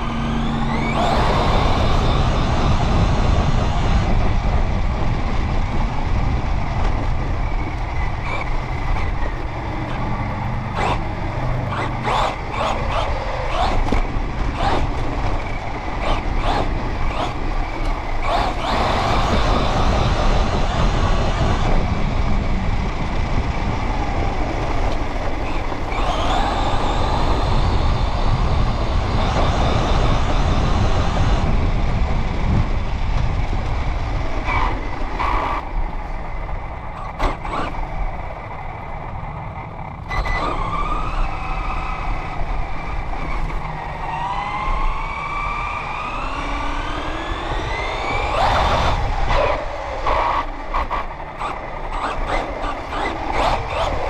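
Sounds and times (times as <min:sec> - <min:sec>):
toy car motor whine: 0:00.0 - 0:04.1, 0:07.6 - 0:21.9, 0:24.8 - 0:31.6, 0:34.4 - 0:35.7, 0:37.0 - 0:37.9, 0:40.1 - 0:54.0
tyres rumbling over rough ground: 0:00.0 - 0:54.0.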